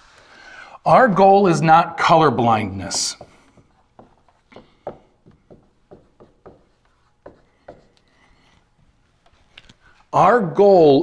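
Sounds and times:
marker writing on whiteboard: 0:02.8 - 0:10.0.

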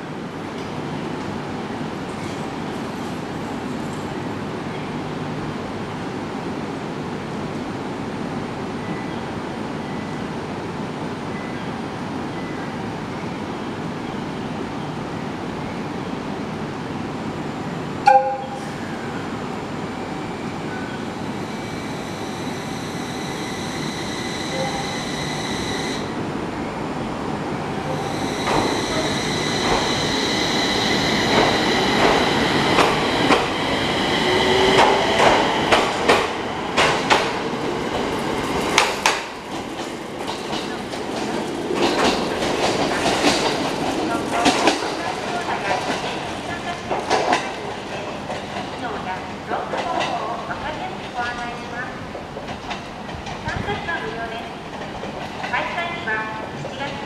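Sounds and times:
train high whine: 0:17.3 - 0:39.8
electric train horn toot: 0:18.0 - 0:18.8, 0:23.1 - 0:26.1.

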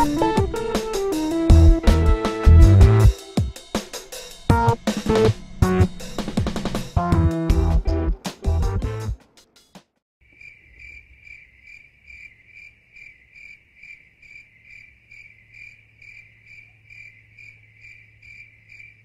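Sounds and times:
cricket chirping: 0:10.2 - 0:19.0.

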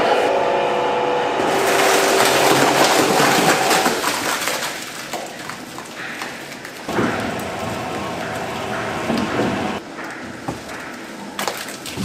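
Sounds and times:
machine hum: 0:00.0 - 0:12.0
wet mass splattering into steel tub: 0:01.5 - 0:07.8.

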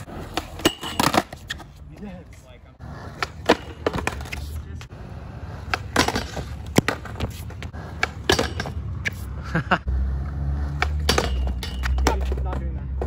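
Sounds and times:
skateboard clacking on concrete: 0:00.0 - 0:02.4, 0:10.8 - 0:13.0
skateboard wheels rolling on concrete: 0:00.0 - 0:13.0.

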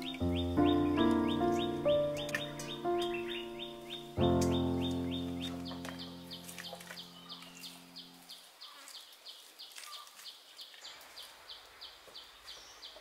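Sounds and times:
insect chirping: 0:00.0 - 0:06.4
background music: 0:00.0 - 0:08.0.

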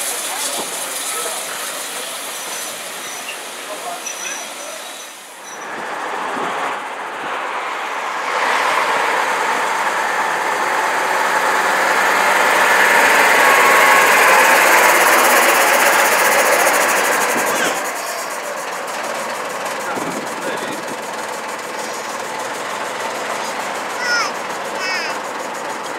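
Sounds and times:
bus diesel engine passing by: 0:00.0 - 0:25.9.

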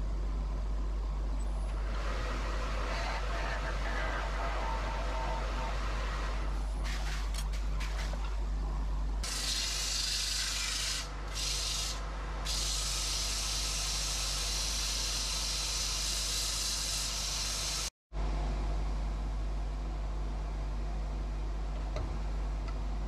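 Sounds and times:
sanding hiss: 0:09.3 - 0:17.9.

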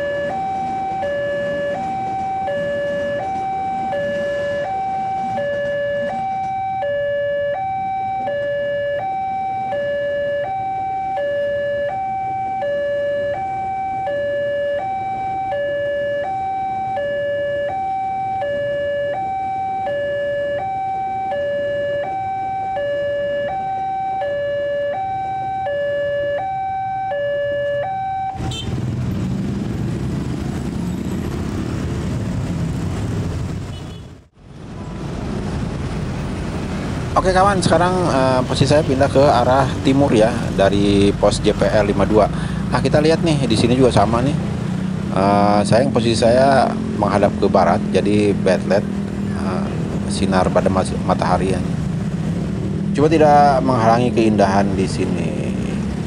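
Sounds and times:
level crossing two-tone alarm: 0:00.0 - 0:28.5
road traffic noise: 0:00.0 - 0:56.0.

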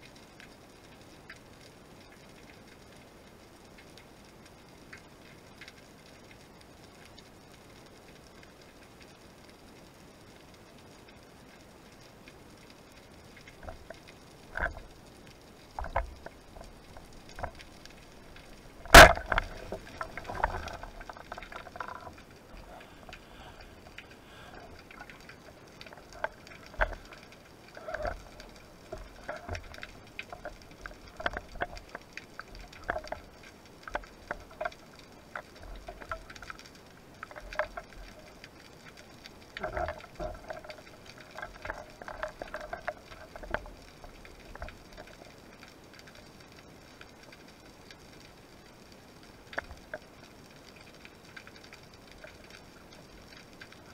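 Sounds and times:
small clicks and knocks: 0:11.0 - 0:48.4, 0:49.4 - 0:53.9
bubbling water: 0:12.6 - 0:47.2
speargun firing underwater: 0:18.8 - 0:19.6.

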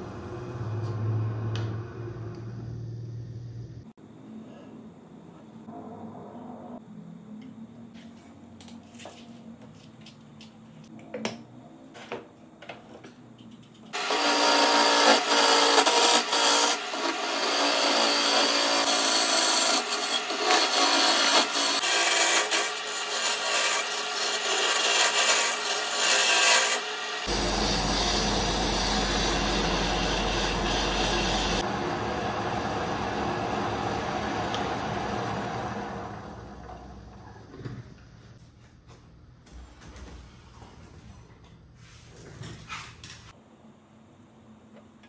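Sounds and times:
hollowing tool scraping wood on lathe: 0:14.0 - 0:31.7.

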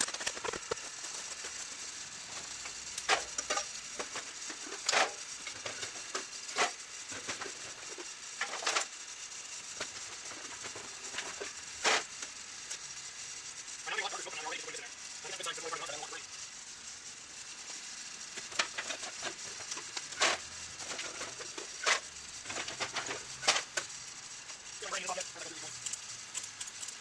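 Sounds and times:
steady hiss: 0:23.2 - 0:26.9.

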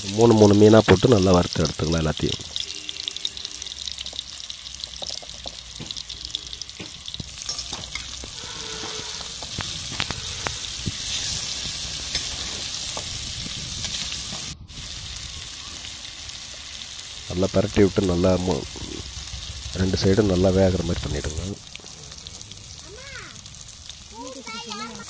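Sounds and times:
fish sizzling in hot oil: 0:00.0 - 0:25.0
spatula scraping a pan: 0:07.4 - 0:13.0.

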